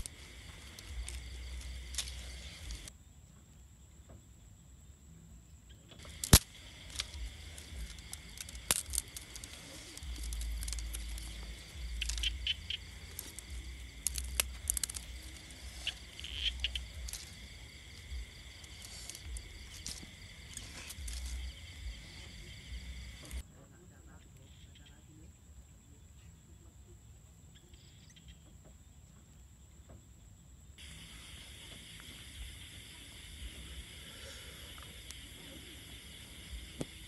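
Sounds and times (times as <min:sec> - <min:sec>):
sticks and twigs snapping: 0:00.0 - 0:02.9, 0:06.0 - 0:22.0, 0:23.1 - 0:23.4
insects chirring: 0:00.0 - 0:37.0.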